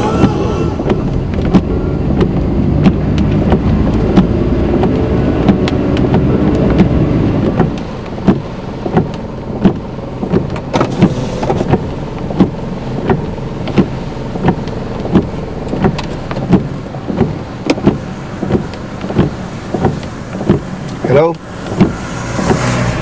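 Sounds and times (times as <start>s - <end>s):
rain on a car: 0.0s - 23.0s
windshield wipers thudding: 0.0s - 23.0s.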